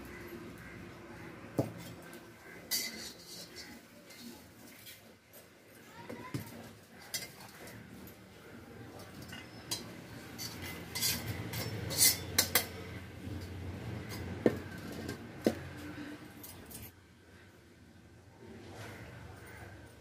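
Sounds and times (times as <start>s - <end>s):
metal spatula scraping pan: 2.4s - 5.0s, 9.2s - 15.2s.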